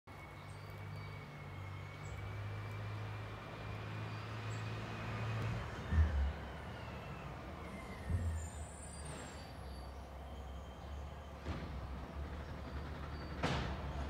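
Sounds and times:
vehicle engine running: 0:00.7 - 0:10.3.

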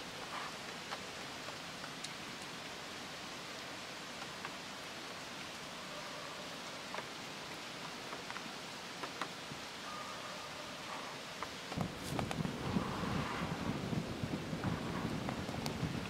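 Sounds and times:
outdoor ambience hiss: 0:00.0 - 0:16.0
faint ticks and clicks: 0:00.2 - 0:02.7, 0:03.5 - 0:05.6, 0:06.9 - 0:09.6.

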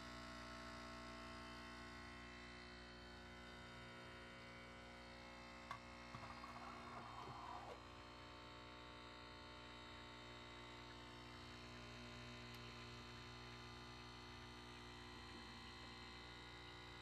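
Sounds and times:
coffee machine pump humming: 0:05.6 - 0:07.9.

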